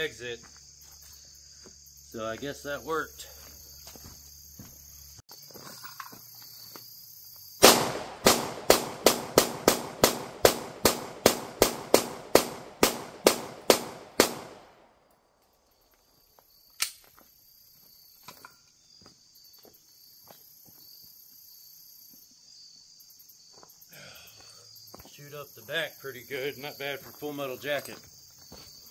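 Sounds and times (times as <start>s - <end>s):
crickets chirping: 0.0s - 28.9s
pistol firing rapidly: 7.6s - 14.8s
sharp click: 16.8s - 17.0s.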